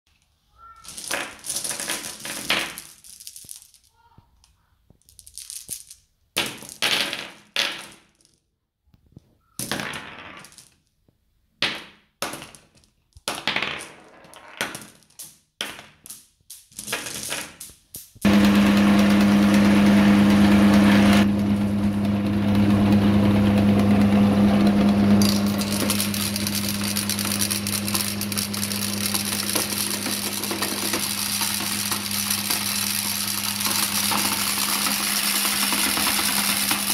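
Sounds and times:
electric motor humming: 18.3s - 36.9s
glass marbles clinking: 25.2s - 36.9s.

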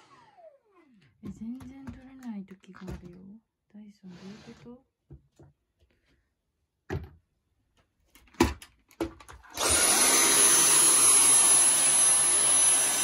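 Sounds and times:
cordless vacuum running: 9.5s - 13.0s.

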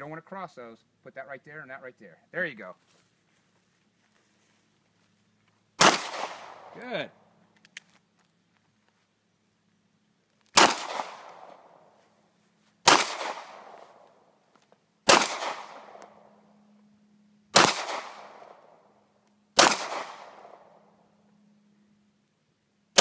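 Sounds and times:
pistol shots: 5.8s - 6.8s, 10.6s - 11.8s, 12.8s - 13.8s, 15.0s - 16.2s, 17.5s - 18.7s, 19.6s - 20.8s.

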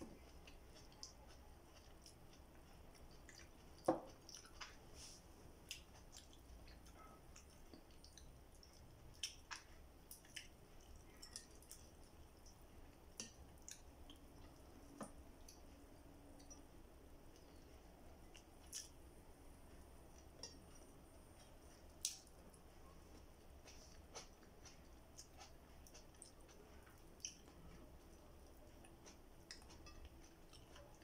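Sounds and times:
person chewing: 0.0s - 31.0s.

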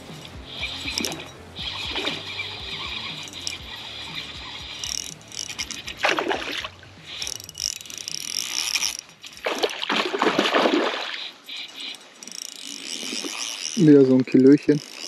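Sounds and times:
spinning reel cranking: 0.0s - 15.0s
fish splashing at surface: 9.4s - 11.4s.

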